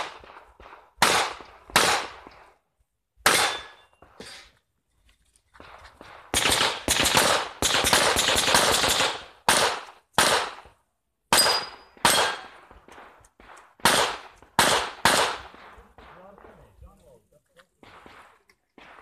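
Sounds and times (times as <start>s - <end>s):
pistol shots with echo: 0.0s - 2.5s, 3.2s - 4.2s, 6.0s - 10.7s, 11.3s - 16.8s, 17.8s - 19.0s.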